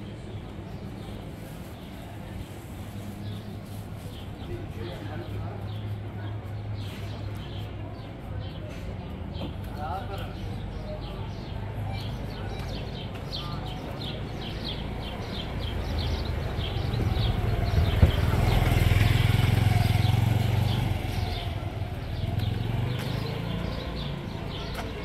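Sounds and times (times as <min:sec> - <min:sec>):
vehicle engine drone passing: 0:16.1 - 0:24.2.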